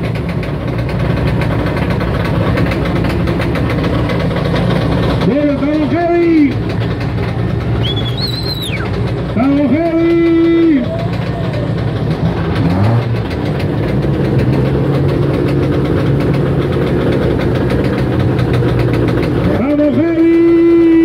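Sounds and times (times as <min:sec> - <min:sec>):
vehicle engines idling: 0:00.0 - 0:21.0
crowd voices: 0:05.2 - 0:13.3
short high whistle: 0:07.8 - 0:08.9.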